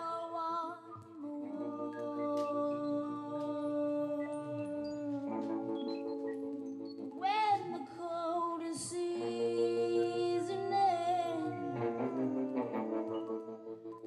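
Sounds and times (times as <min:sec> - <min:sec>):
person singing long notes: 0:00.0 - 0:14.0
band playing sustained chords: 0:09.2 - 0:14.0.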